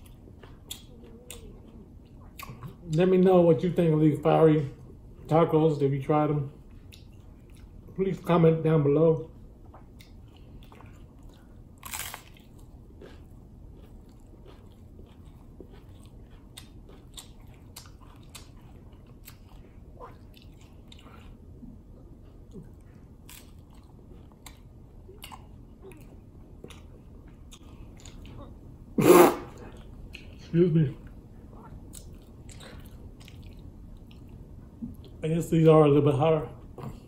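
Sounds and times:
chewing crackles: 0:00.0 - 0:03.1, 0:06.6 - 0:08.0, 0:09.3 - 0:28.7, 0:29.5 - 0:35.2
crunching bites into taco shell: 0:11.8 - 0:12.5.

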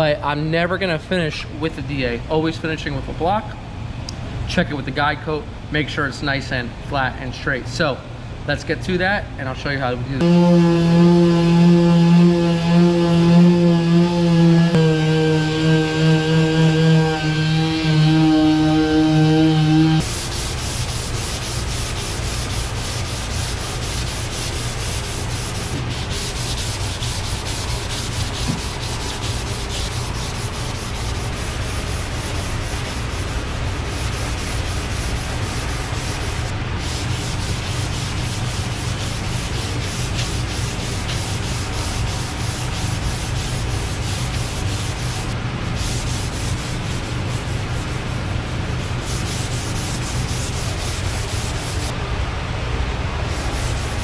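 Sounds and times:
pneumatic sander humming: 0:10.2 - 0:21.2
hand sanding with sandpaper: 0:10.2 - 0:51.9, 0:53.3 - 0:54.0.

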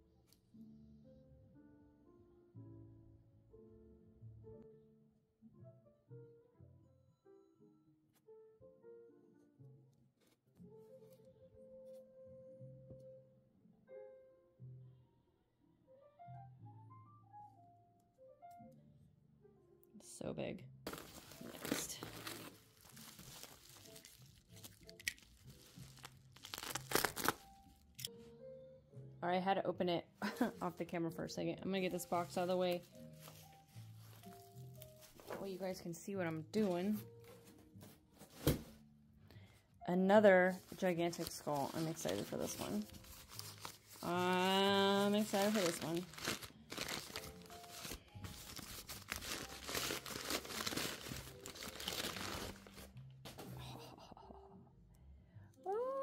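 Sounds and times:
faint music: 0:05.6 - 0:56.0
plastic wrap crinkling: 0:20.9 - 0:27.6, 0:31.8 - 0:35.6, 0:40.5 - 0:53.0.

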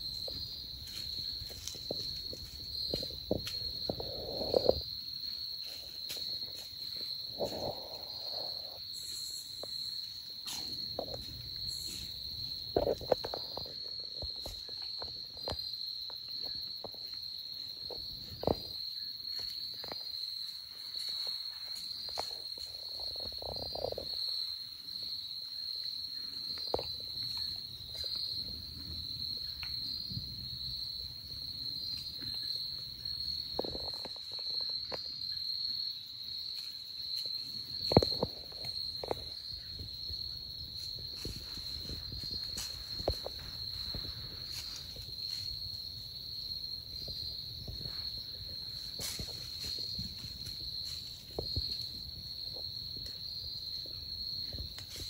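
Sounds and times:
insects droning: 0:00.0 - 0:55.0
crunching in dry leaves: 0:47.0 - 0:52.0.

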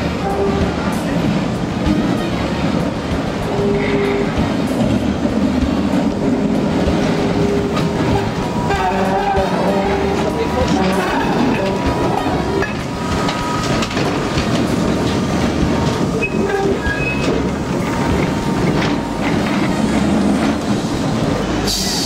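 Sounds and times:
tram wheels rumbling and clicking: 0:00.0 - 0:22.0.

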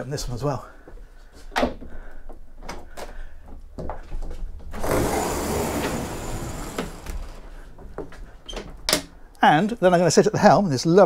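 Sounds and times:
roof panel sliding rumble: 0:04.7 - 0:08.4.

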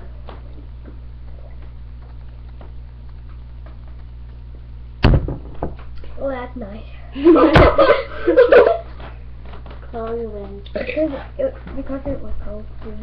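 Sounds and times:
loud thump: 0:05.0 - 0:05.9, 0:07.5 - 0:07.9.

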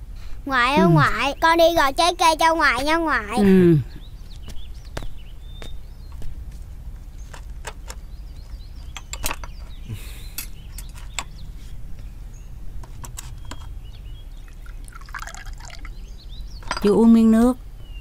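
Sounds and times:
porcelain teapot and cups clinking: 0:14.5 - 0:15.9.

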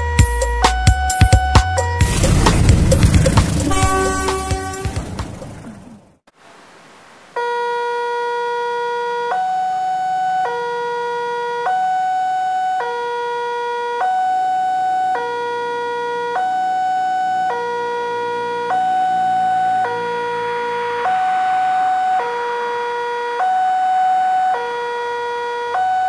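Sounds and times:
level crossing two-tone alarm: 0:03.7 - 0:05.0, 0:16.2 - 0:22.6.

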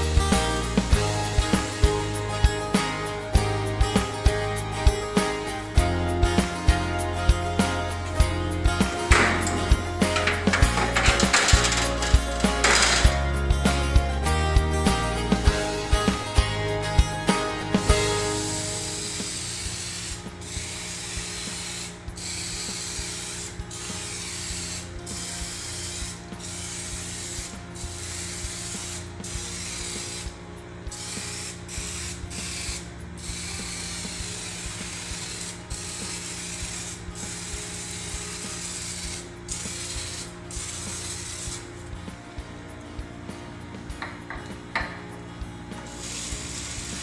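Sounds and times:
scrubber rasping on metal filter: 0:09.0 - 0:13.2.

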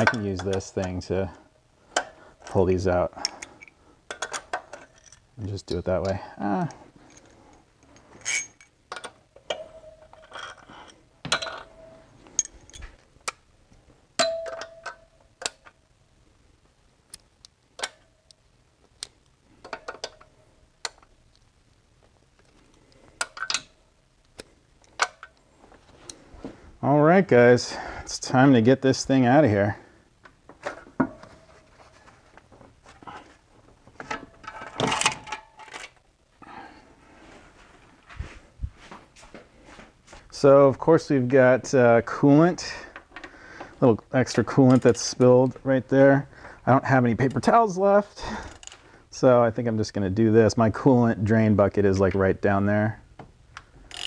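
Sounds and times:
metal bolts clicking and clinking: 0:00.0 - 0:01.1, 0:01.9 - 0:13.4, 0:14.2 - 0:15.8, 0:17.8 - 0:18.4, 0:19.6 - 0:21.1, 0:23.2 - 0:23.8, 0:24.8 - 0:25.4, 0:34.0 - 0:36.0
metallic ring: 0:09.5 - 0:10.6, 0:14.2 - 0:15.2.

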